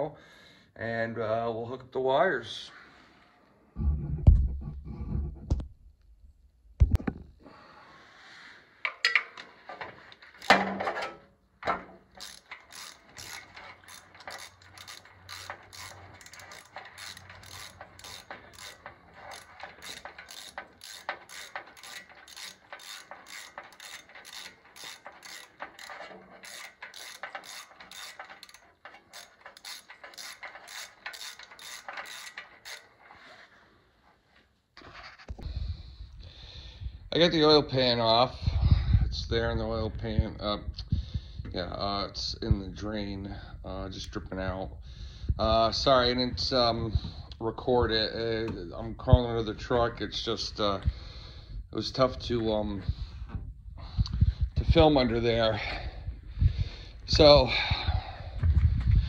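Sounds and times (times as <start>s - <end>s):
ratchet wrench clicking: 12.1s - 32.9s.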